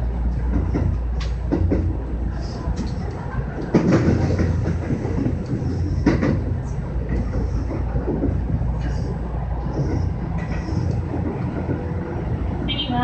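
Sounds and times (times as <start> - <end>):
electric train rumbling: 0.0 - 13.0
wheels clacking over rail joints: 2.6 - 12.0.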